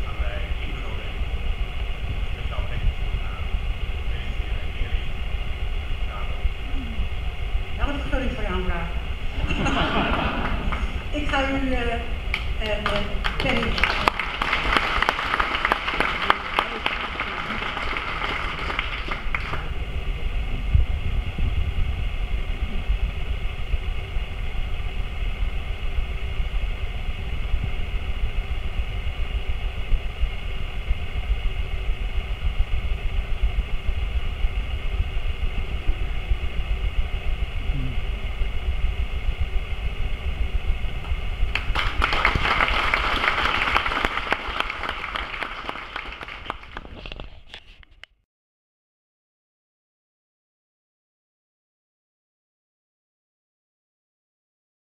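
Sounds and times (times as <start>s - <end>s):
steady low rumble: 0.0s - 47.6s
audience applauding: 9.5s - 11.1s, 12.3s - 19.8s, 41.5s - 47.3s.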